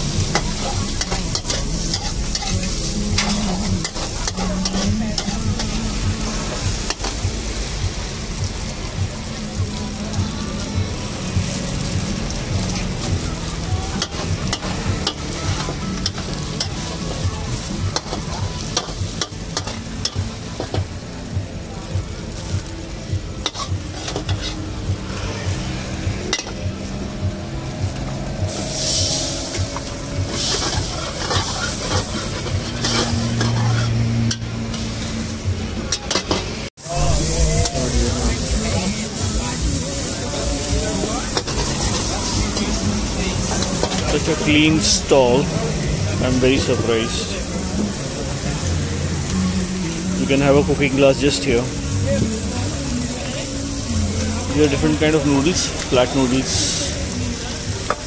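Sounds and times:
metal ladle scraping wok: 0.0 - 7.2, 23.4 - 57.0
food sizzling in a wok: 0.0 - 58.0
low rumble: 36.8 - 43.8.

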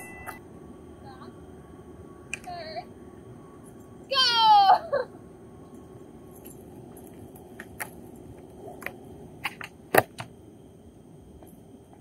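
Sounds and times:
skateboard wheels rolling on asphalt: 5.8 - 12.0
skateboard clacks: 7.4 - 10.3.

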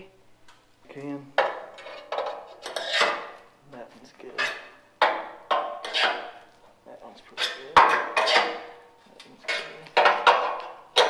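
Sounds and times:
metal tool scraping in bolt hole: 1.5 - 3.4, 4.4 - 6.4, 7.3 - 8.8.

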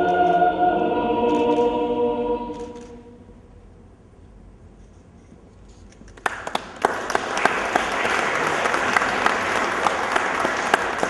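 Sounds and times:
audience applause: 6.2 - 11.0.

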